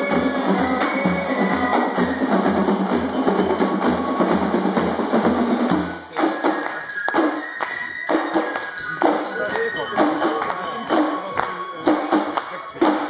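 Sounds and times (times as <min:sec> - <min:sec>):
bass drum beat: 0:00.0 - 0:06.0
fife and drum march: 0:00.0 - 0:13.0
crowd clapping along: 0:05.8 - 0:13.0.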